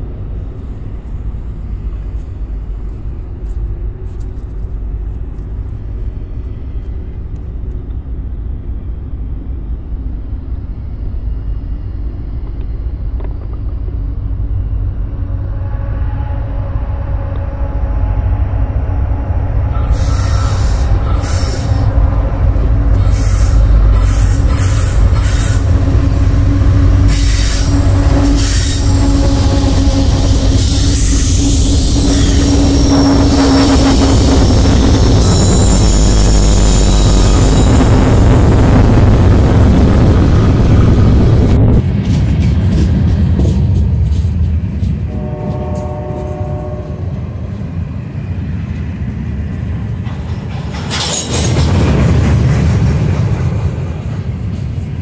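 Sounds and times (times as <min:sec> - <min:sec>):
diesel locomotive engine rumble: 0:00.0 - 0:55.0
train wheels clattering: 0:41.8 - 0:46.5, 0:48.7 - 0:55.0.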